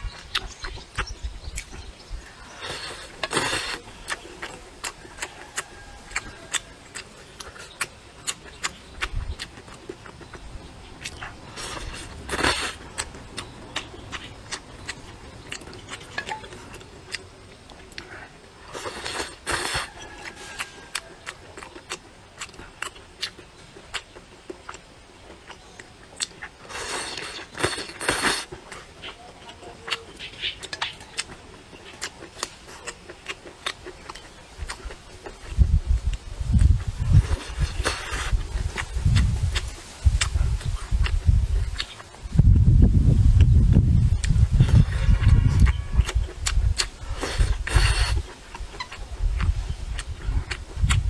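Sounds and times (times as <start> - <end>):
wet chewing smacks: 0.1 - 42.2, 43.4 - 51.0
person slurping noodles: 2.5 - 3.8, 11.5 - 12.8, 18.7 - 19.9, 26.7 - 28.5, 47.0 - 48.3
wet mouth clicks: 43.4 - 51.0.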